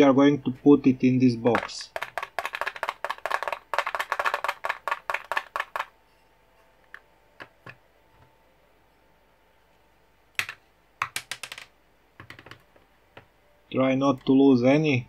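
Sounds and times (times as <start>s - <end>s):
ball bearings rattling into plastic box: 1.6s - 5.9s.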